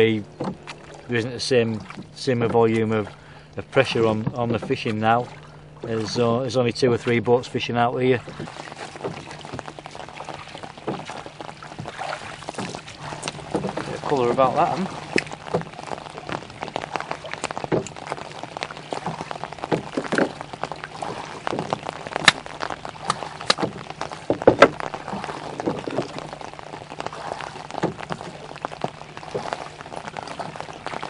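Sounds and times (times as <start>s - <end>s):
light wet pattering over water: 0.0s - 31.0s
sharp clicks and knocks: 21.5s - 24.9s.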